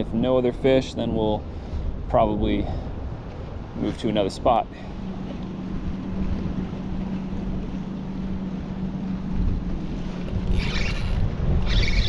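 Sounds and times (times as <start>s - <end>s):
water lapping around boat: 0.0s - 12.0s
wind on microphone: 0.0s - 12.0s
steady low hum: 1.4s - 12.0s
fishing reel spinning bursts: 10.3s - 12.0s.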